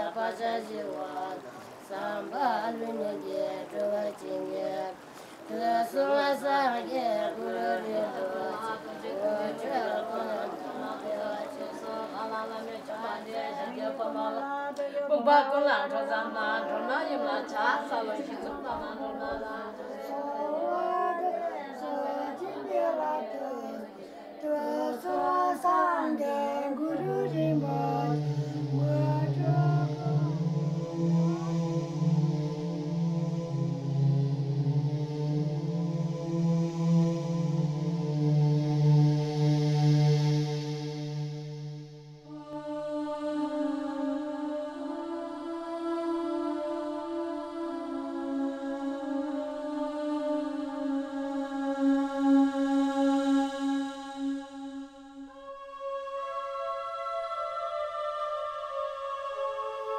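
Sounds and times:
person singing slow melody: 0:00.0 - 0:59.9
low drone: 0:27.0 - 0:43.6.

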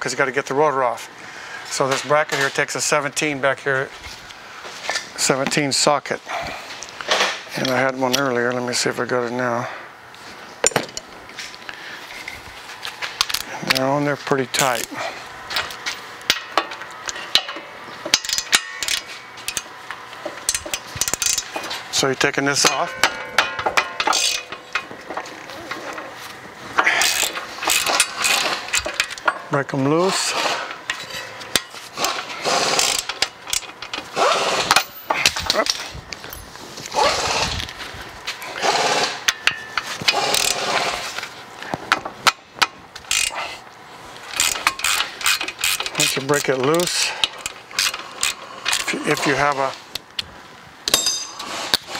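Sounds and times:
socket wrench ratchet clicking: 0:43.1 - 0:43.3, 0:44.4 - 0:48.9.

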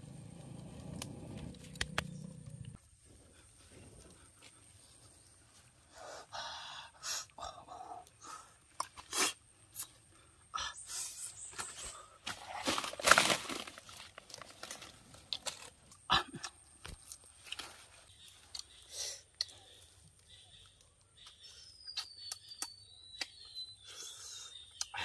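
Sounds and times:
twigs and leaves crackling: 0:00.0 - 0:05.9, 0:11.4 - 0:23.4.

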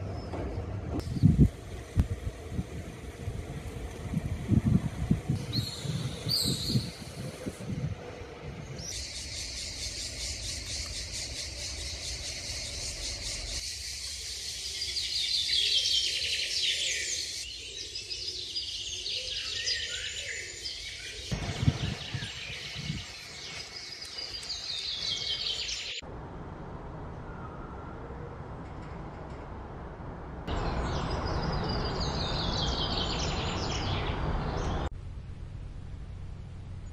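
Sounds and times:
birds chirping and singing: 0:04.2 - 0:26.0, 0:30.5 - 0:34.9
insects chorus: 0:08.8 - 0:17.4.

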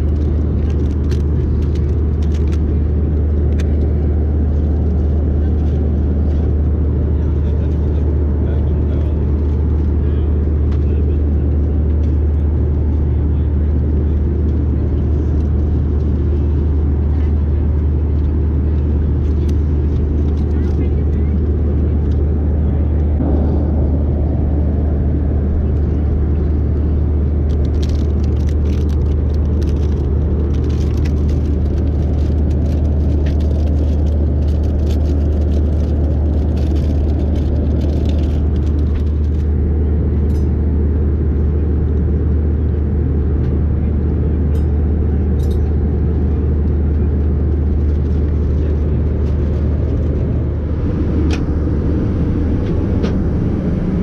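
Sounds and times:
airplane cabin engine rumble: 0:00.0 - 0:54.0.

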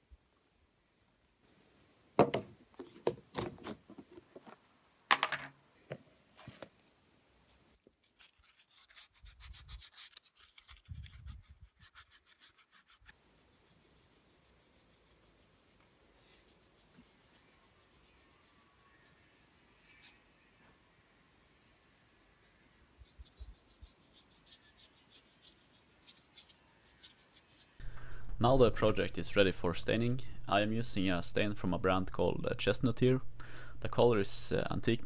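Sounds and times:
hand-sanding wood carving: 0:08.5 - 0:19.8, 0:23.0 - 0:27.8.

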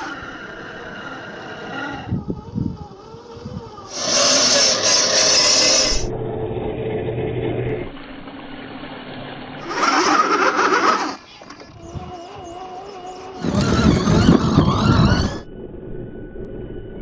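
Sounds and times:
toy truck grinding and scraping: 0:00.0 - 0:06.2, 0:09.6 - 0:15.5.

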